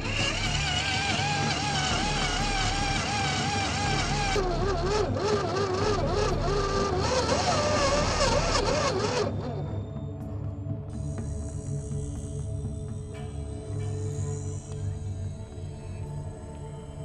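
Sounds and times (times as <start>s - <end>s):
electric motor and gearbox whining: 0.0s - 10.2s.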